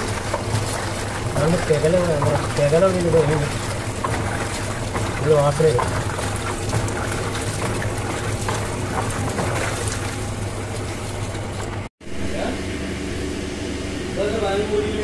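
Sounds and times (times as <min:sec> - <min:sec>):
tap water pouring into basin: 0:00.0 - 0:11.8
steady low hum: 0:00.0 - 0:15.0.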